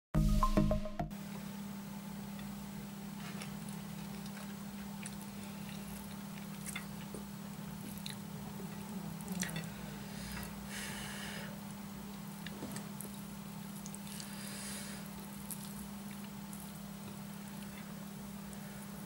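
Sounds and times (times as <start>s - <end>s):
fingers mixing food on a plate: 3.2s - 10.6s.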